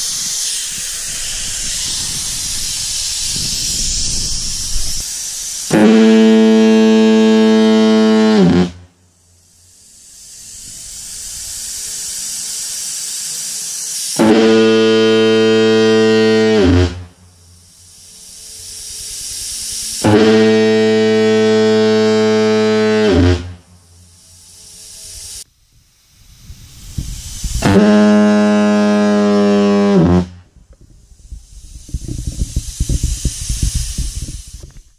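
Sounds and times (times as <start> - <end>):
hiss of air: 0.0 - 34.9
fog horn blasts: 5.7 - 9.1, 14.2 - 17.3, 20.0 - 23.8, 27.6 - 30.5.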